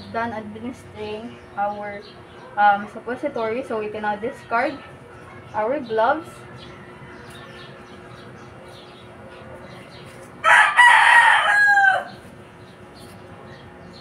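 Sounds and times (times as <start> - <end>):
rooster crowing: 6.6 - 7.9, 10.4 - 12.3.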